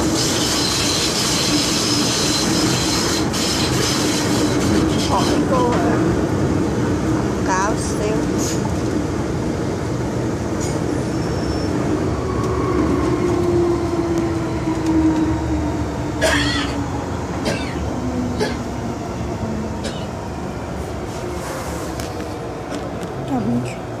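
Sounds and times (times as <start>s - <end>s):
train rumble with motor whine: 0.0s - 24.0s.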